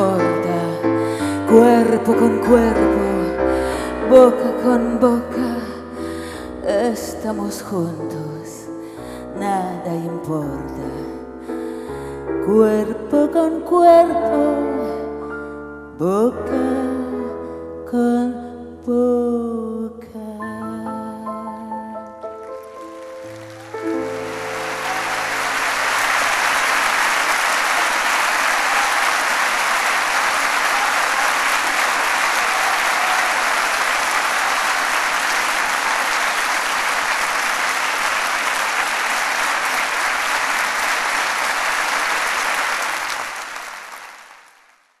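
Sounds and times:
audience applauding: 22.3 - 45.0.

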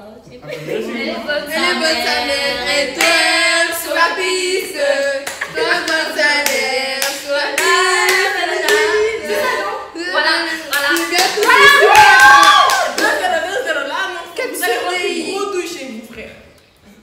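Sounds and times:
children singing together: 0.9 - 11.9.

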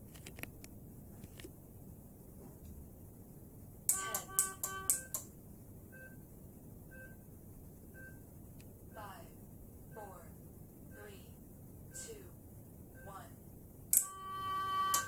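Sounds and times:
sharp chime-like electronic notes: 3.9 - 5.2.

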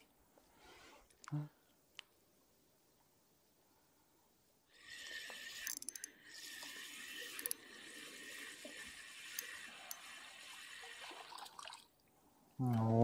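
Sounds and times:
fishing reel gears whirring: 4.8 - 10.7
reel clicks: 5.5 - 6.2, 7.2 - 7.6.

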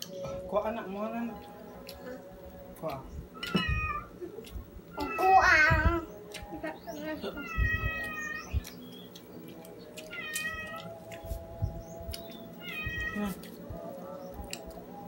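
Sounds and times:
cat meowing: 3.4 - 4.1, 7.4 - 8.5, 10.1 - 10.9, 12.6 - 13.4.

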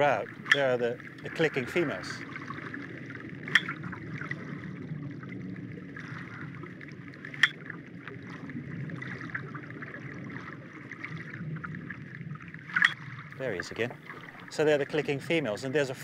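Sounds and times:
rapid whale echolocation clicks: 2.5 - 4.2, 7.2 - 8.1
loud single whale clicks: 3.5 - 3.8.

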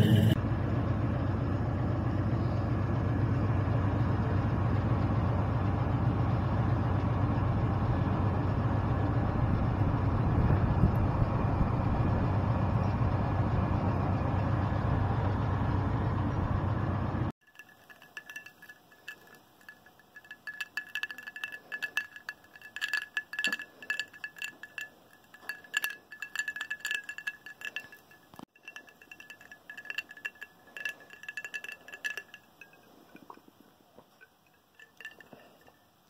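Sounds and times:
glass tumbler clinking: 17.4 - 36.0.

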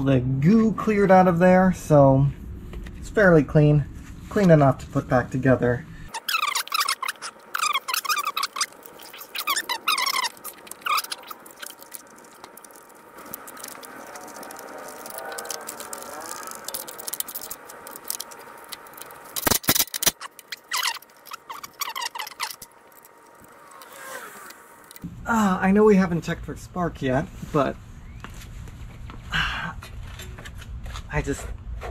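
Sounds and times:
faint squeaks: 6.1 - 12.9, 20.1 - 22.6
small engine parts clicking: 6.1 - 25.0.

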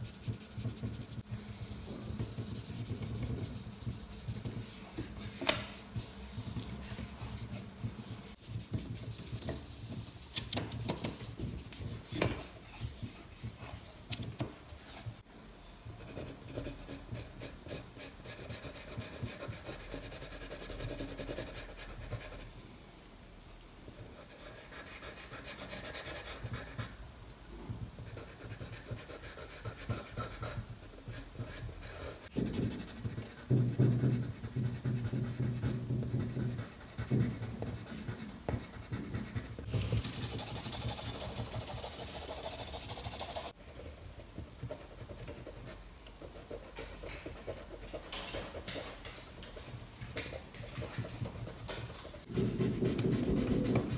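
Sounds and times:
charcoal scratching on paper: 31.2 - 43.6, 52.2 - 53.9.

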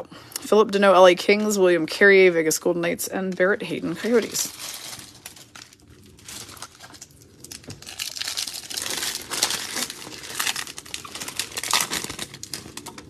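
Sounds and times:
foil pack crinkling: 3.8 - 13.0.

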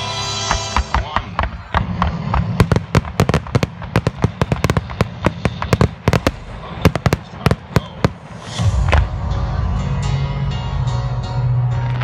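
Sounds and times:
fireworks crackling: 0.3 - 9.1.

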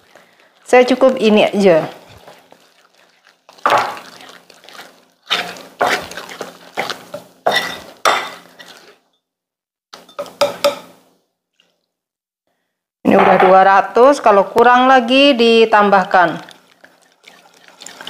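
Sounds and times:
utensil scraping and clinking bowl: 0.6 - 9.0, 10.0 - 11.0.

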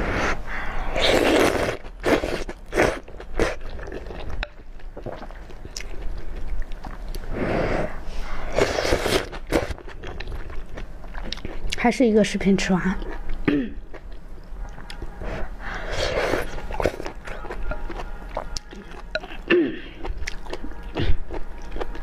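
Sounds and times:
person slurping noodles: 0.0 - 4.0, 7.3 - 9.7, 15.2 - 17.1
wet chewing clicks: 1.8 - 7.3, 16.2 - 22.0.

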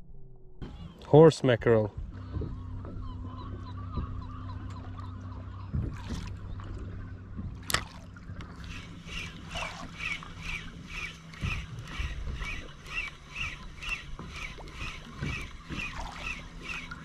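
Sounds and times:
low boat engine hum: 0.0 - 17.0
fishing reel whirring: 7.7 - 17.0.

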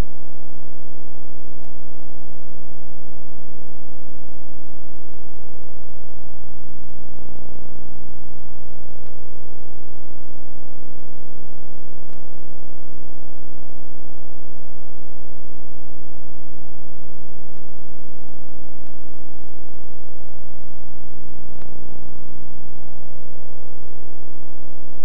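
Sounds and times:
faint ticks: 21.5 - 22.1.

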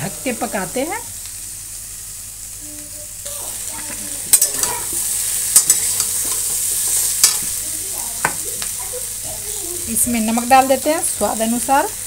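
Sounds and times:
vegetables sizzling in oil: 0.0 - 12.0
metal spatula striking pan: 4.3 - 7.6.

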